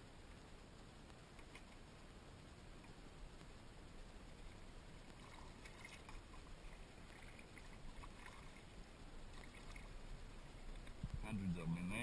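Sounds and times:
kayak paddle splashing: 4.4 - 11.0.

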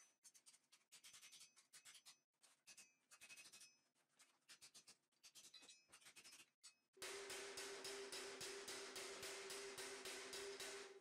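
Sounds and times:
hammer on steel plate: 7.0 - 11.0.

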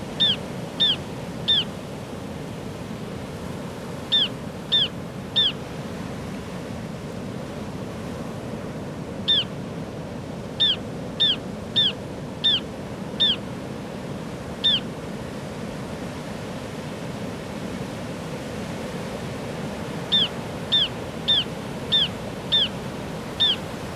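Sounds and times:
short high bird calls: 0.1 - 1.8, 4.0 - 5.6, 9.2 - 9.6, 10.6 - 13.4, 14.6 - 14.9, 20.1 - 23.7.

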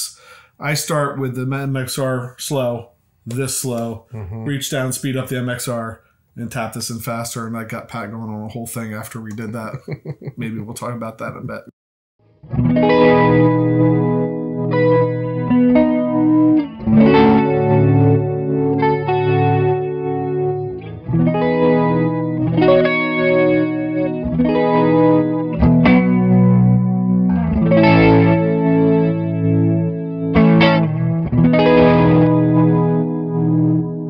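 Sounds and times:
electric guitar chords with chorus: 12.3 - 34.0.

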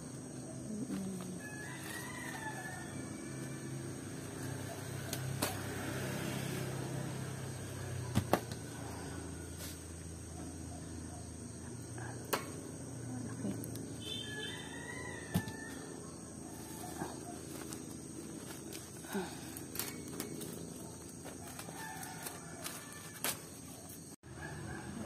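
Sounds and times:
insect drone: 0.0 - 25.0
bird or chicken calls: 14.0 - 17.9.

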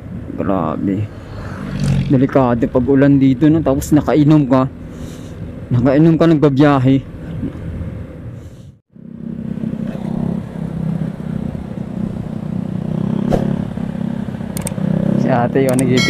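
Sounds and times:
road and wind noise: 0.0 - 16.0
motorcycle engine running: 9.0 - 16.0.

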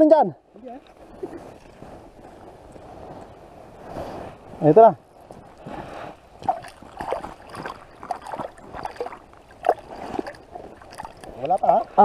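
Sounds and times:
water splashing in hole: 6.4 - 11.8.

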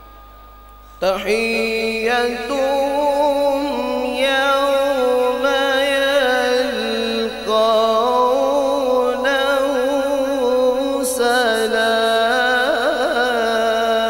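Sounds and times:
man chanting melodically into microphone: 0.9 - 14.0.

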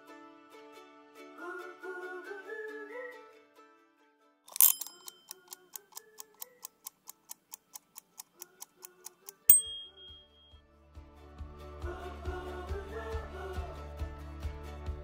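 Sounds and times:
clock ticking: 4.5 - 10.4
sharp strike with high ring: 9.5 - 10.5.

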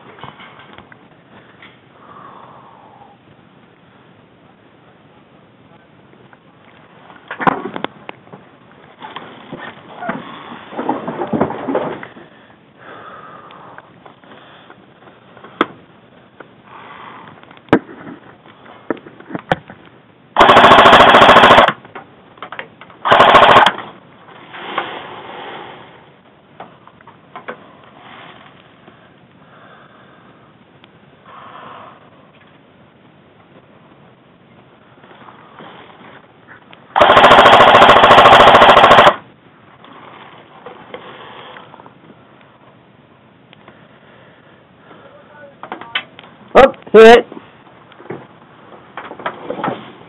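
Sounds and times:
airsoft rifle full-auto bursts: 20.4 - 21.8, 23.0 - 23.9, 37.0 - 39.2.

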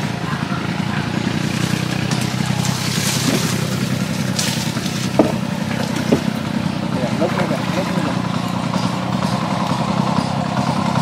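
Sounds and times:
small engine running: 0.0 - 11.0
light knocks: 5.0 - 6.3.

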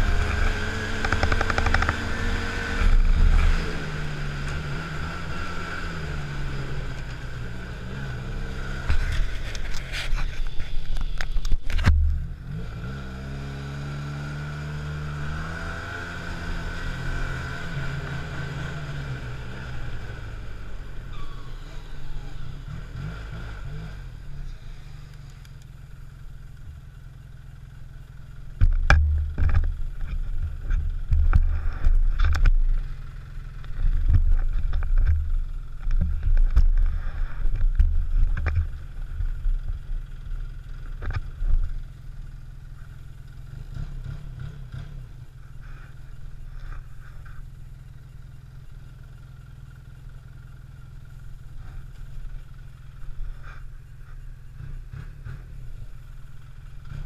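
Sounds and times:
snowmobile engine running: 0.0 - 25.1, 50.6 - 57.0.

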